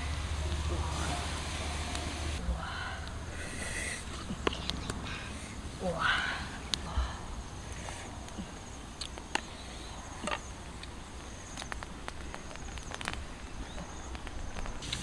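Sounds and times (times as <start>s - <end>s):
sharp clicks and snaps: 11.6s - 15.0s.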